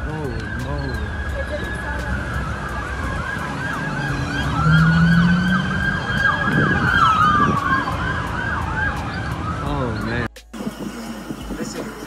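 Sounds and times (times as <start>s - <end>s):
wailing siren: 0.0s - 10.3s
yelping siren: 0.0s - 10.3s.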